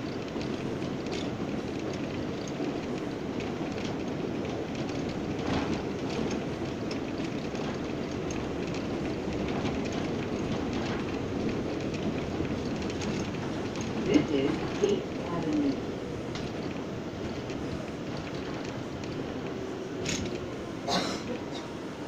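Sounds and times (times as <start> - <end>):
subway train wheels rumbling: 0.0 - 22.0.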